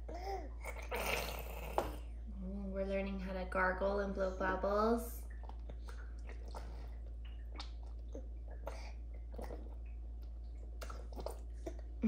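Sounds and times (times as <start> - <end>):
wet mouth clicks and slurps: 5.3 - 11.9
baby sipping from a straw cup: 10.8 - 11.8.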